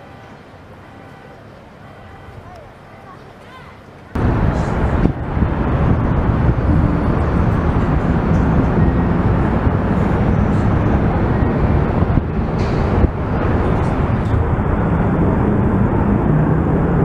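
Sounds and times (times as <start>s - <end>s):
outdoor rumble and hiss: 0.0s - 17.0s.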